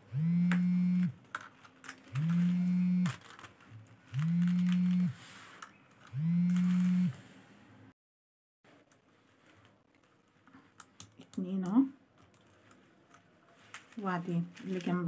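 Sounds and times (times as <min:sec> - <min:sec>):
beads clicking: 0:00.5 - 0:06.9.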